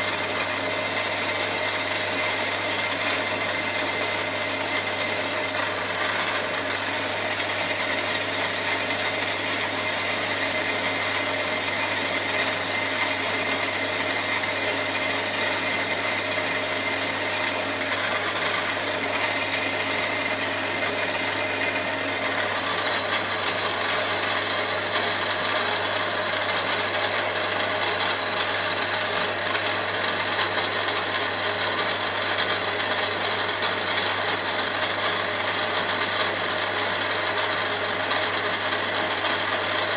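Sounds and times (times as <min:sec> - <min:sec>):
milling machine cutting metal: 0:00.0 - 0:39.9.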